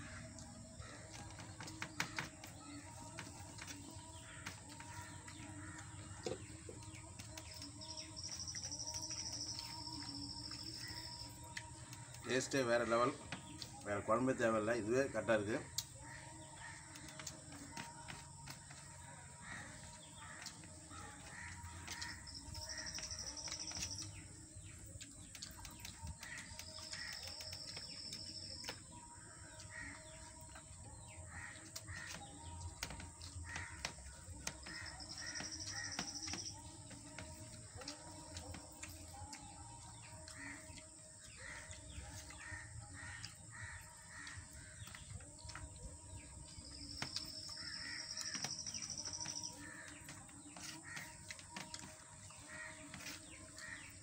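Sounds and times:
birds calling: 0.0 - 54.0
crows cawing: 19.3 - 23.5, 29.3 - 30.4, 31.3 - 32.4, 33.2 - 36.6, 40.2 - 45.1, 47.4 - 54.0.

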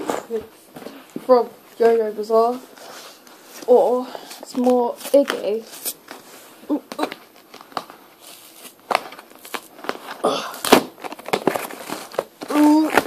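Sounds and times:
cardboard ripping: 7.0 - 13.0.

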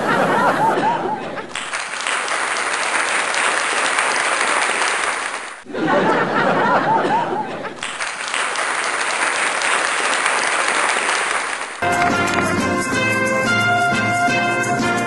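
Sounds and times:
crowd cheering: 0.0 - 13.4
audience applause: 1.5 - 5.6, 7.8 - 12.8
upbeat music: 11.8 - 15.0.

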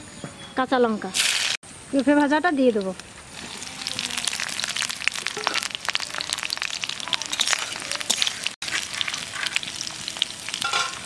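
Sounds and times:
oil sizzling in a wok: 1.2 - 1.6, 2.6 - 11.0.

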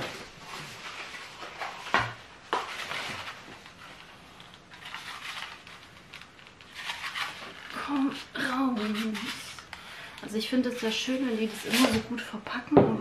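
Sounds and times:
cardboard wrapping rustling: 0.0 - 9.7.

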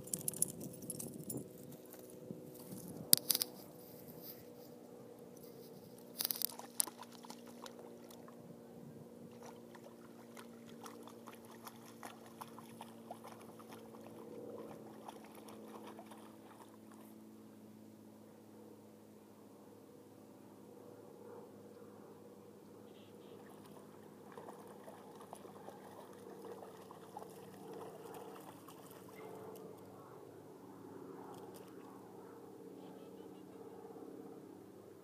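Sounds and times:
faint steady hum: 0.0 - 35.0
dog splashing in water: 9.4 - 16.7, 23.5 - 29.2.

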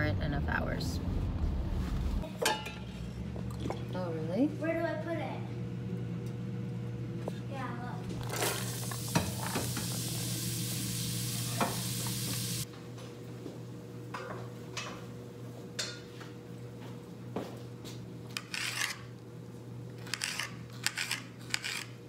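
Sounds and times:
utensils and dishes clinking: 2.2 - 3.8, 8.2 - 10.0
sizzling hiss: 9.0 - 12.6.

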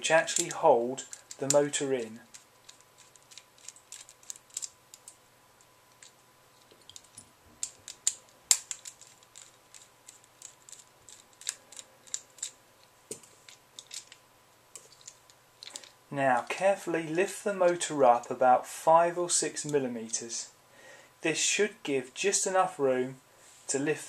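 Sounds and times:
plastic parts handled: 0.0 - 16.6.

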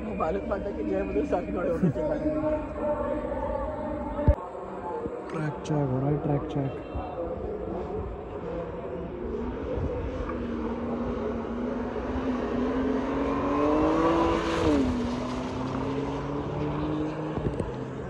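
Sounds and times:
car engine passing by: 10.2 - 18.0.

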